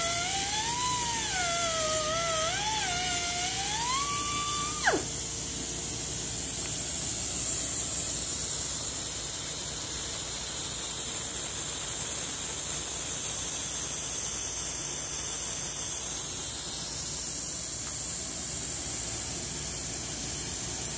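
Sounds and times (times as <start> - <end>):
pneumatic polisher hissing: 0.0 - 20.9.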